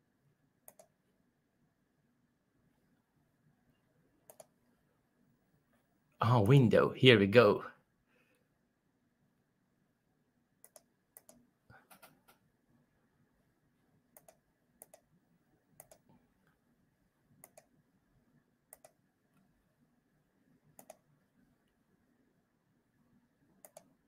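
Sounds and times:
computer mouse clicks: 0.6 - 1.0, 4.2 - 4.6, 10.6 - 12.5, 14.1 - 15.1, 15.8 - 16.1, 17.4 - 17.8, 18.7 - 19.5, 20.7 - 21.1, 23.6 - 24.0.

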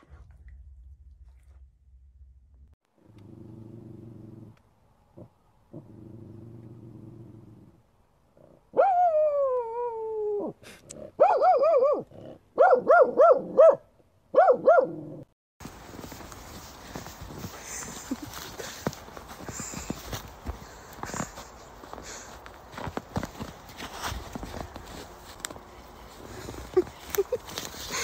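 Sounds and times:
dog growling low: 3.0 - 4.6, 5.2 - 8.7
dog barking loudly: 11.2 - 15.0.

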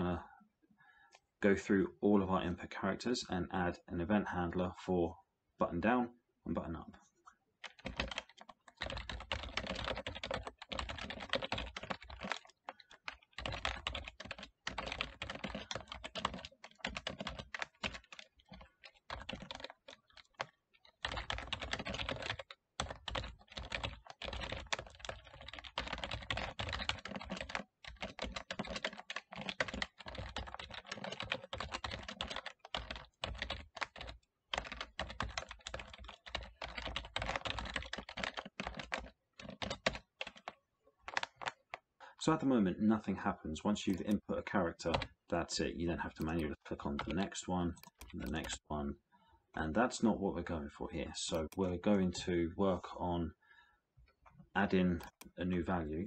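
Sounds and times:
typing on computer keyboard: 7.6 - 41.9, 43.9 - 45.2, 46.1 - 48.6, 51.2 - 51.7, 54.9 - 55.4.

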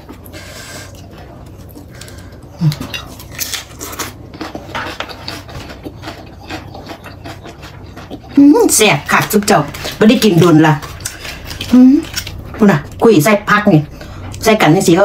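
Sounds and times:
person chewing food: 0.0 - 13.0.

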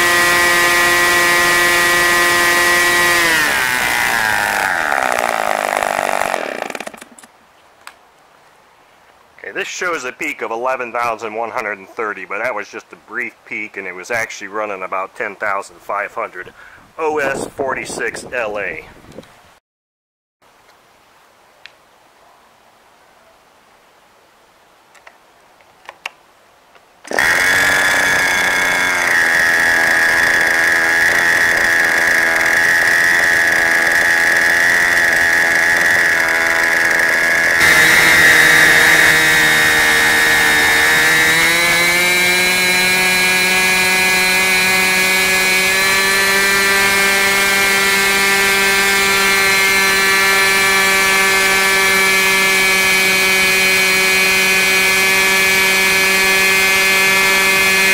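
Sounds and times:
model glow engine running: 27.1 - 57.9.

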